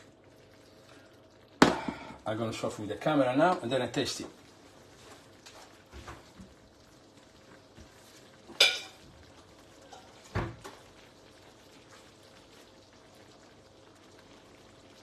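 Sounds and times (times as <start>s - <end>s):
faint steady background noise: 0.0s - 15.0s
kitchenware clattering: 8.5s - 9.0s.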